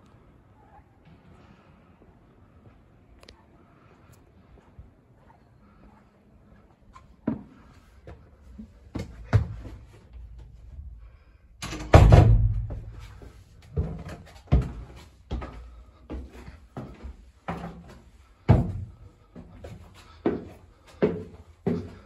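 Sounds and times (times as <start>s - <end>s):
footsteps on wooden stairs: 7.2s - 10.6s, 12.6s - 22.0s
heavy thud: 11.6s - 13.0s.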